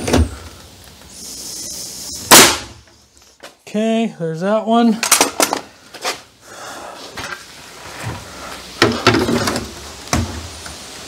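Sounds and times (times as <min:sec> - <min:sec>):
wooden boards knocking and clattering: 0:08.8 - 0:10.4.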